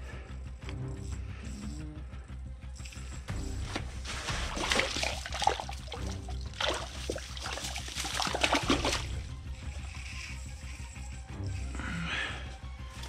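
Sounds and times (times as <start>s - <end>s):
hand splashing water: 4.1s - 9.3s.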